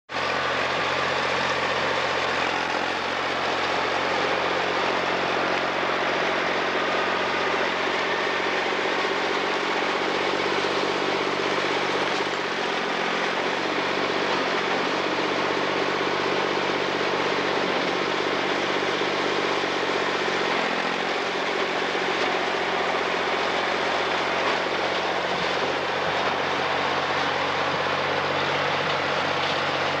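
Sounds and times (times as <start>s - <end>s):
loader engine running: 0.1s - 30.0s.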